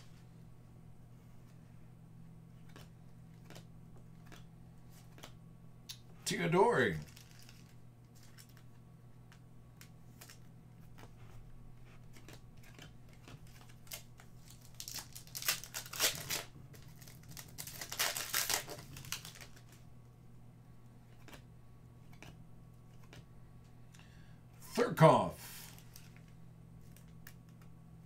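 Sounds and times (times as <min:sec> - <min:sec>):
low electrical hum: 0:00.0 - 0:28.0
foil wrapper tearing and crinkling: 0:07.0 - 0:08.6, 0:12.2 - 0:19.8.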